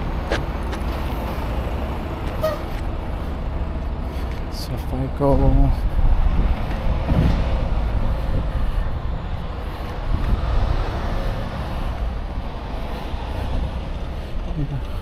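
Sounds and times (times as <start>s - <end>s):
diesel machinery rumbling: 0.0s - 15.0s.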